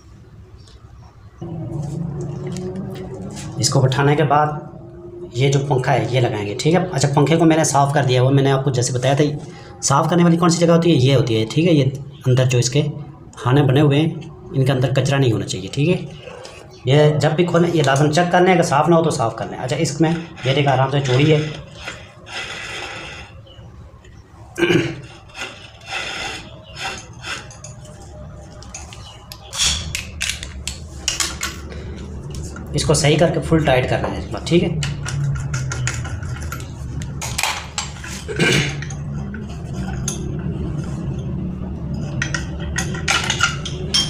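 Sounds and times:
steady low hum: 0.0 - 44.0
metal scraping and rubbing: 1.4 - 8.0, 19.1 - 23.6, 25.0 - 44.0
metal clinks and scraping: 26.8 - 32.2, 34.8 - 40.5, 41.9 - 44.0.

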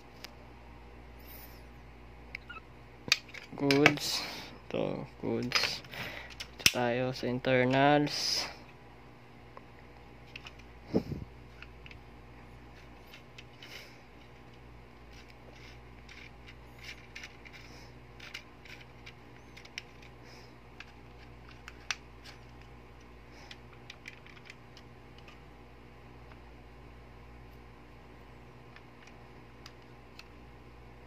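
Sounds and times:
toy pistol parts clicking and rattling: 3.1 - 4.1, 5.4 - 8.2, 10.3 - 10.7, 12.8 - 20.1, 20.8 - 25.4.

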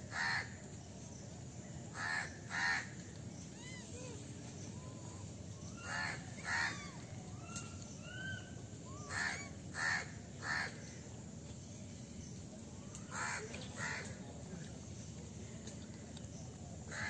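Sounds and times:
crows cawing: 0.1 - 0.5, 2.0 - 2.9, 5.8 - 6.8, 9.1 - 10.8, 13.1 - 14.1.

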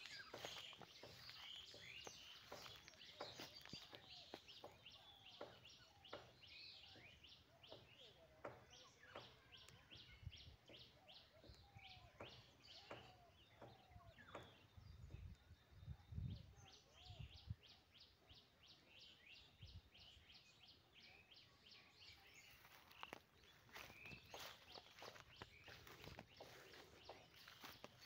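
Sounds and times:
bird chirping: 0.0 - 28.0.

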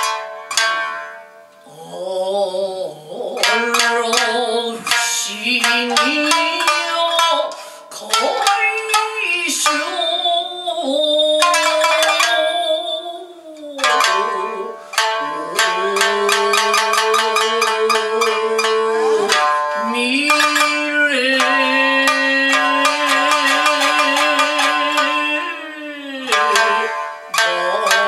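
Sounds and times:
shamisen plucked: 0.0 - 28.0
woman singing held notes: 1.7 - 6.2.

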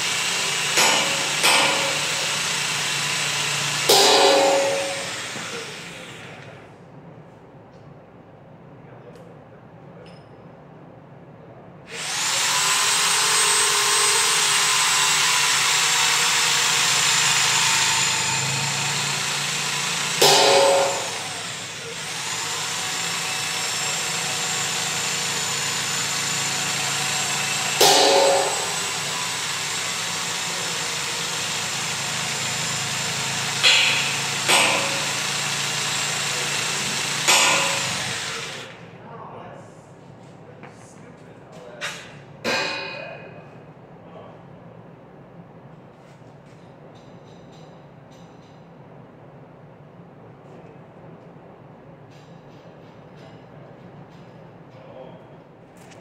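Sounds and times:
power tool running high-pitched: 0.0 - 6.3, 11.9 - 38.8
sharp ringing knocks: 3.9 - 5.1, 20.2 - 21.3, 27.8 - 29.0, 33.6 - 35.1, 42.4 - 43.2.

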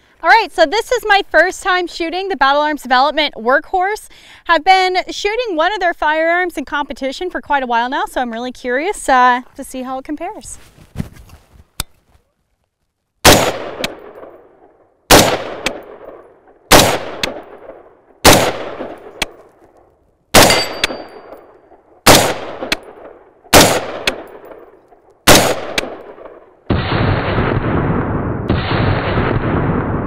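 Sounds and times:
rifle shots: 13.2 - 14.5, 15.1 - 19.4, 20.3 - 30.0.

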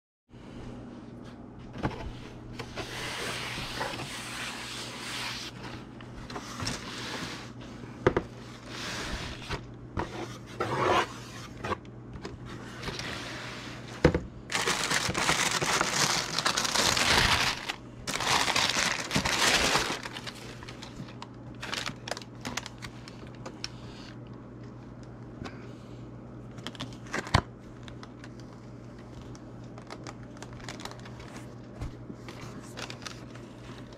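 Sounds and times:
tissue paper rustling: 14.5 - 23.2, 32.3 - 33.9.

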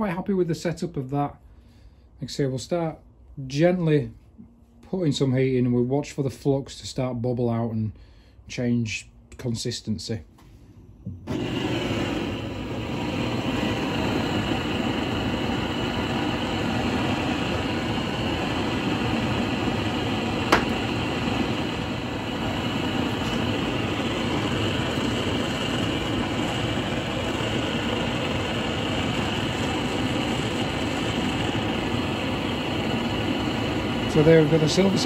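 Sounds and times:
blowtorch flame hissing: 11.2 - 35.0.

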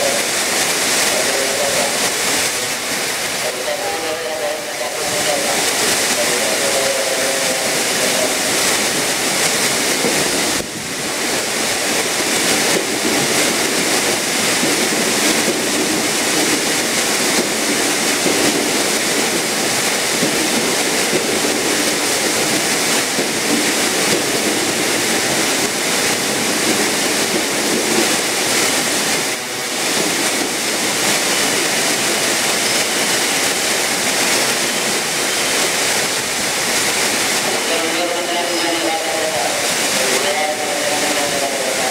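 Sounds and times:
electric train rolling in: 0.0 - 41.9
heavy rain hissing on roof: 0.0 - 41.9.

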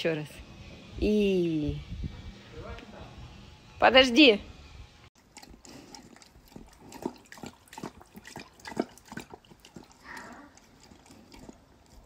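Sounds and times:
animal lapping water: 5.2 - 12.0.

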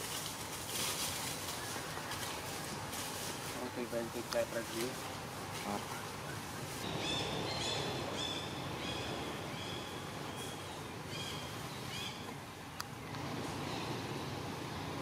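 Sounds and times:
outdoor background noise: 0.0 - 15.0
bird calling: 5.6 - 14.4.

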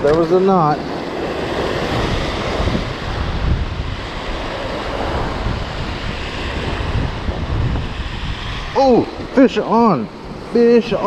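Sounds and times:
surf breaking over rocks: 0.0 - 11.0
wind buffeting microphone: 0.0 - 11.0.

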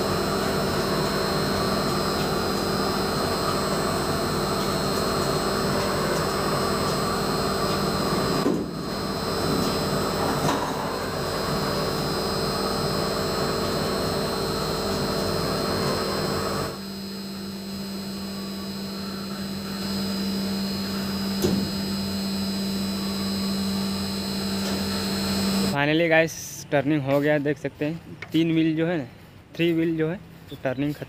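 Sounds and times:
lathe machine humming: 0.0 - 25.8.

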